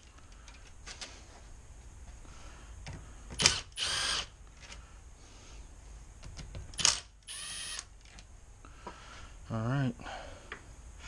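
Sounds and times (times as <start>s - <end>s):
cordless driver whining: 3.4s - 4.3s.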